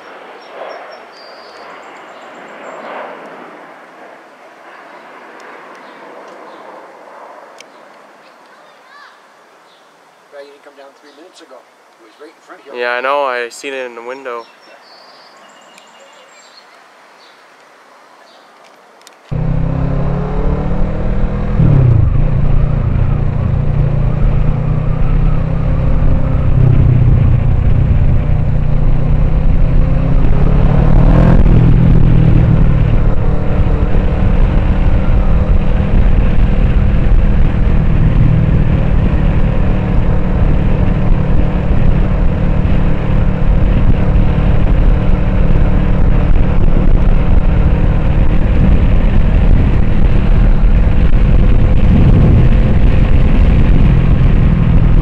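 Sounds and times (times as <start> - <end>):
motorcycle engine running: 19.3 - 55.0
wind noise at helmet: 20.5 - 55.0.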